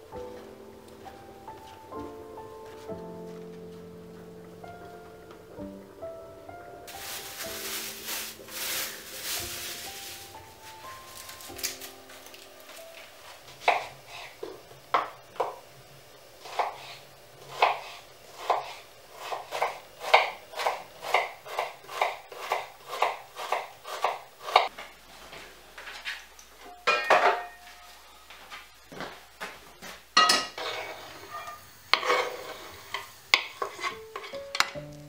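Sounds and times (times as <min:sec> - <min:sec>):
crockery clinking: 0:26.7 - 0:27.9, 0:30.2 - 0:34.8.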